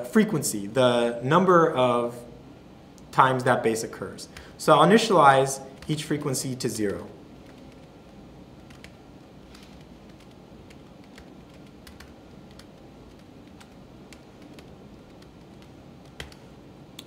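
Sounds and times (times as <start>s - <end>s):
typing on laptop keyboard: 6.9s - 16.5s.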